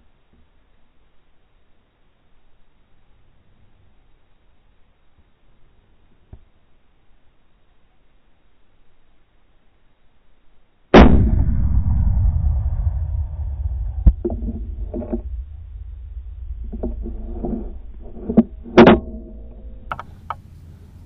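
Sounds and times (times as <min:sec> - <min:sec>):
rifle shot: 0:11.0 - 0:20.0
sharp loud bang: 0:11.0 - 0:20.0
low rumbling report: 0:11.0 - 0:21.0.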